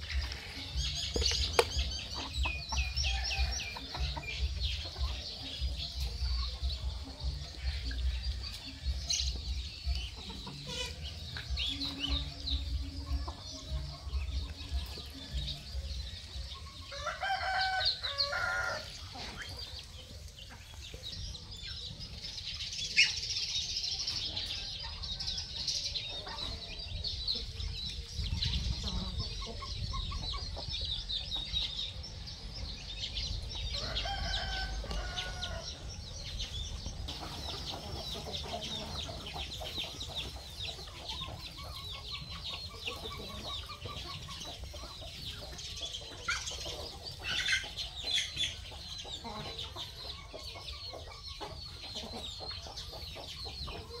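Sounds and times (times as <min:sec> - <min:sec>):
chickens clucking: 0:00.0 - 0:54.0
high chatter of small calls: 0:00.0 - 0:54.0
rooster crowing: 0:16.9 - 0:18.9, 0:33.8 - 0:35.7.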